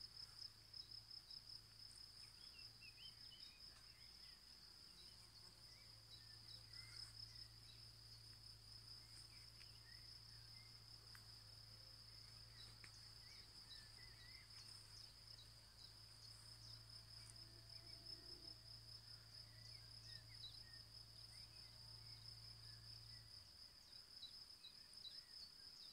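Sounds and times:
faint low hum: 0.0s - 25.4s
crickets chirring: 0.0s - 25.9s
bird chirps: 2.2s - 8.3s.

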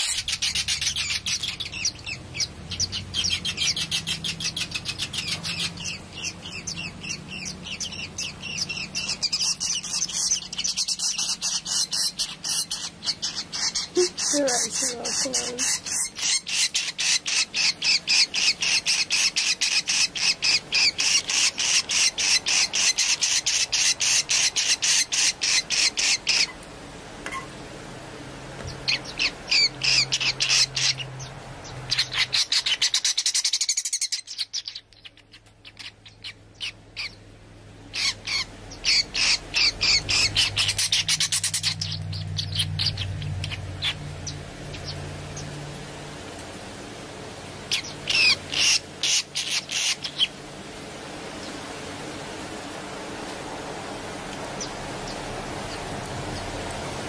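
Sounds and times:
bird chick clicking chirps: 0.0s - 26.7s, 31.7s - 37.2s, 38.0s - 45.0s.

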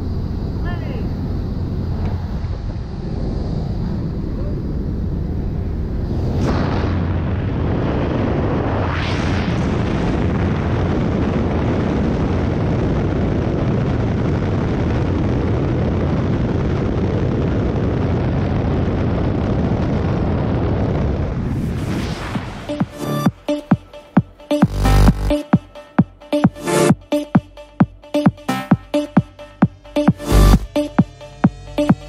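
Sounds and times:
plane engine and propeller: 0.0s - 6.4s
wind roar: 0.0s - 23.9s.

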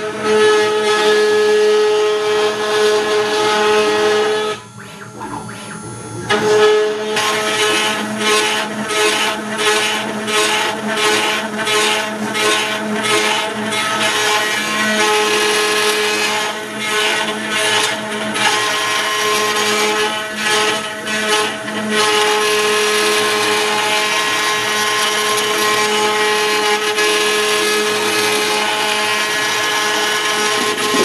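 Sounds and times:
milling spindle whine: 0.2s - 11.6s.

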